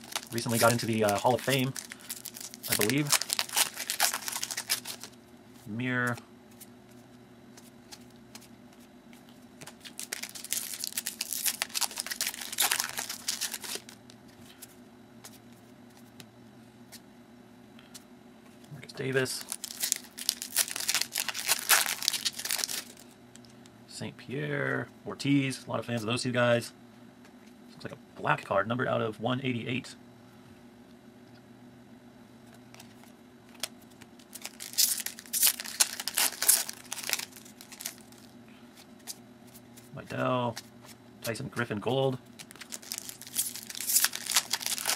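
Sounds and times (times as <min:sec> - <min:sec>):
foil wrapper tearing and crinkling: 0:00.0 - 0:05.1, 0:09.6 - 0:14.0, 0:19.3 - 0:23.1, 0:33.5 - 0:38.3, 0:42.3 - 0:44.9.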